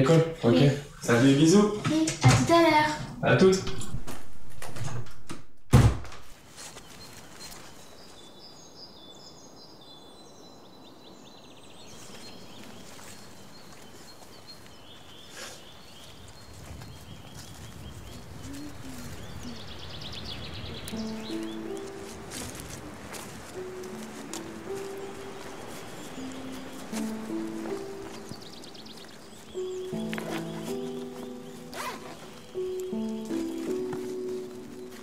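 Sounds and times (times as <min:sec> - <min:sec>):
sharp thump: 0:03.7 - 0:06.3
small birds chirping: 0:06.3 - 0:35.0
low held musical notes: 0:20.8 - 0:35.0.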